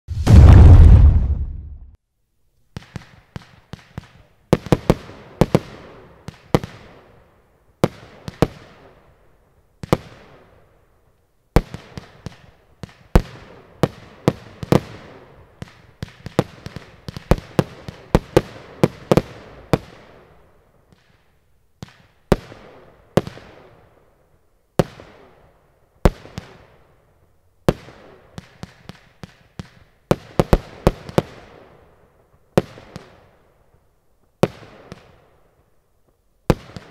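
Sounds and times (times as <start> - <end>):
fireworks banging: 0.1 - 2.0.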